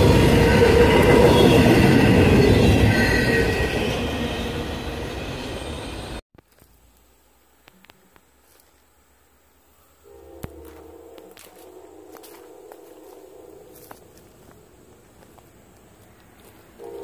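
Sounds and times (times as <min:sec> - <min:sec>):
train wheel rumble: 0:00.0 - 0:06.2.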